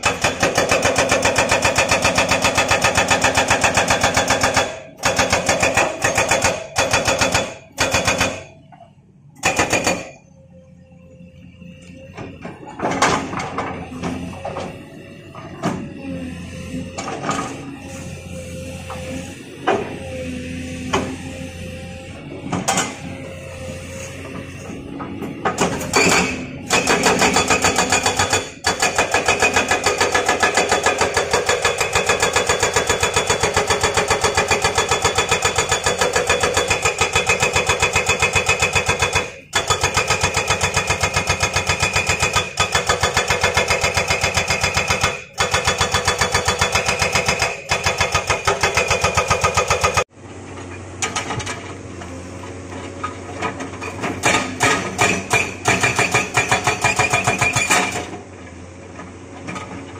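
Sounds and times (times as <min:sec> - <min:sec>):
hydraulic breaker hammering rock: 0:00.0 - 0:08.5, 0:09.4 - 0:10.2, 0:24.2 - 0:50.1, 0:53.3 - 0:58.3
excavator running: 0:00.0 - 0:59.9.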